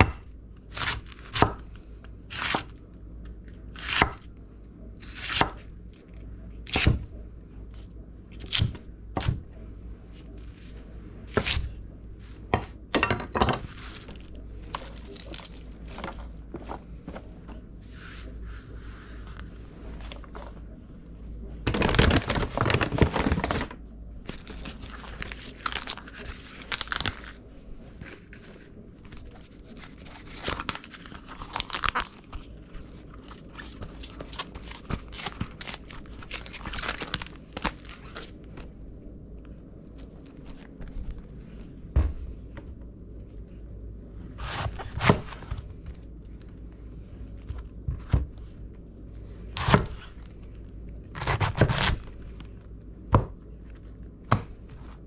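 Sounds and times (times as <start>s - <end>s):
cabbage leaves tearing and crunching: 0.6s - 1.7s, 2.3s - 2.8s, 5.0s - 6.9s, 13.6s - 16.8s, 21.7s - 38.7s, 44.3s - 45.6s, 49.5s - 52.8s.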